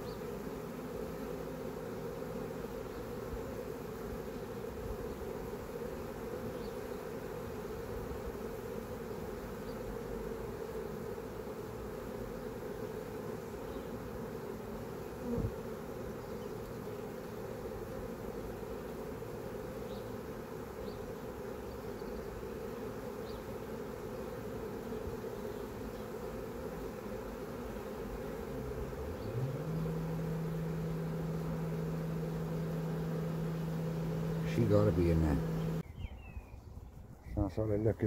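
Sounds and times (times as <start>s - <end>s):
honeybees buzzing: 0.0s - 38.0s
low bump: 28.5s - 35.8s.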